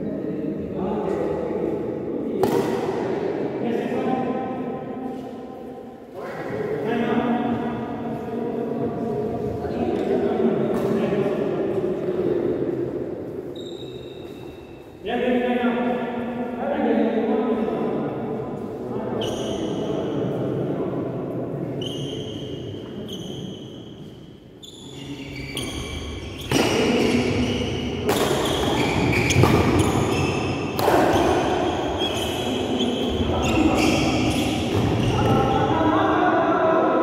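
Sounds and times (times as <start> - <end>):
racket hitting shuttlecock: 2.4 - 3.2, 28.0 - 30.0, 30.7 - 31.6
sports shoes squeaking on floor: 13.5 - 15.0, 19.2 - 19.9, 21.8 - 35.3.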